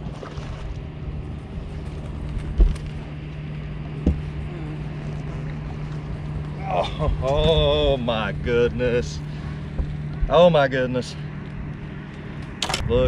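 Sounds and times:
electric trolling motor humming: 0:00.0 - 0:13.0
dull thumps on boat deck: 0:04.0 - 0:04.4, 0:09.7 - 0:10.4.

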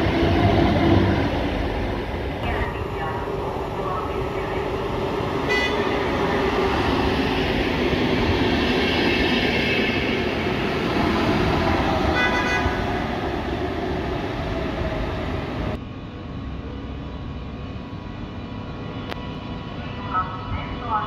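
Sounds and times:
train wheels rumbling on rail: 0:00.0 - 0:16.8.

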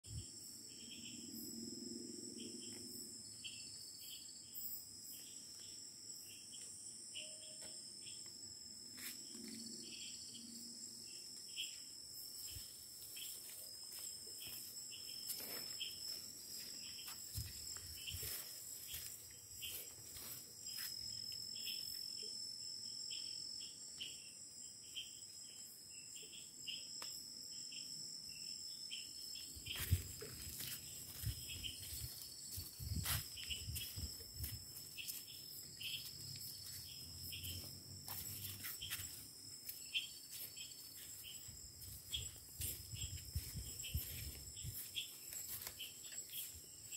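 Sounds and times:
lower insect chirp: 0:00.0 - 0:46.9
insects trilling: 0:00.1 - 0:46.9
footsteps through undergrowth: 0:12.4 - 0:21.5, 0:29.4 - 0:46.9.

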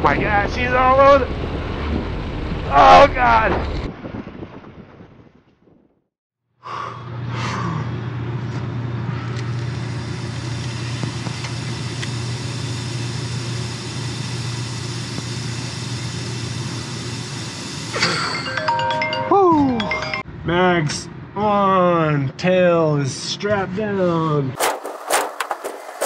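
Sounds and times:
ultralight aircraft engine droning: 0:00.0 - 0:03.8, 0:06.9 - 0:18.1.

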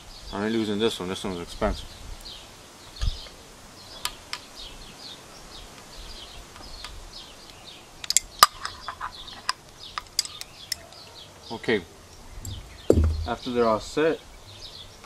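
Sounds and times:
birds chirping: 0:01.9 - 0:15.0
dull knock: 0:12.4 - 0:13.5.

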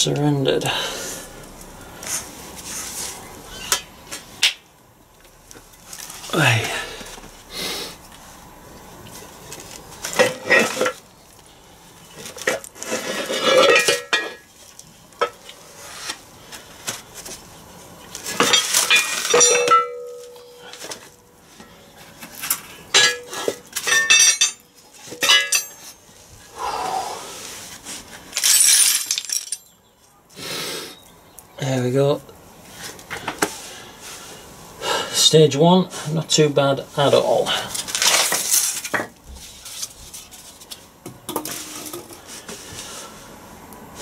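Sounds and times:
metal gearbox parts clanking: 0:23.0 - 0:24.6, 0:25.2 - 0:25.9
metallic ring: 0:25.2 - 0:26.0.

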